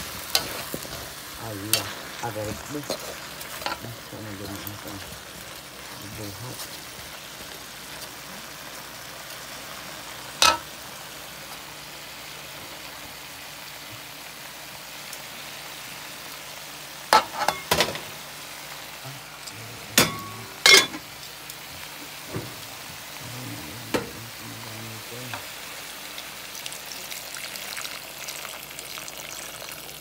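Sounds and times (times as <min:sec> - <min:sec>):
food sizzling in a pan: 0:00.0 - 0:30.0
spoon knocking and scraping pan: 0:02.8 - 0:03.9, 0:10.4 - 0:10.7, 0:17.2 - 0:18.1.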